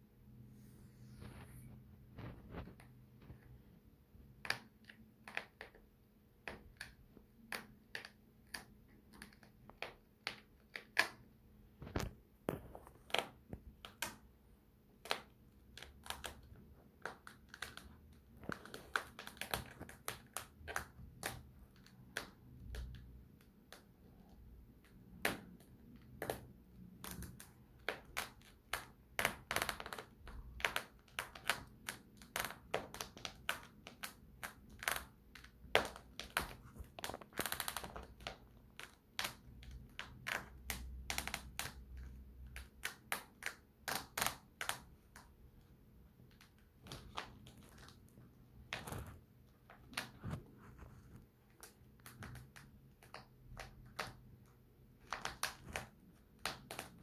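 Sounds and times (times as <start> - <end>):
soft rustle: 0.4 - 3.6, 47.7 - 51.6
high heels clicking and creaking: 48.6 - 51.1.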